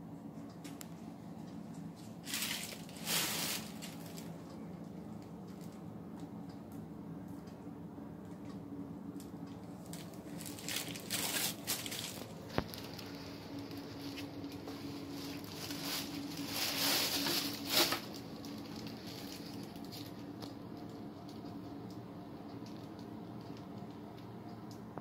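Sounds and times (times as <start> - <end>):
steady low hum: 0.0 - 25.0
rustling: 1.7 - 4.4, 9.8 - 20.5.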